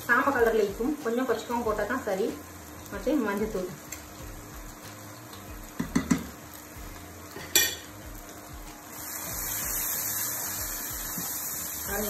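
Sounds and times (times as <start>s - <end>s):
masala sizzling in hot oil: 0.0s - 12.0s
metal spoon clinking: 7.5s - 7.8s.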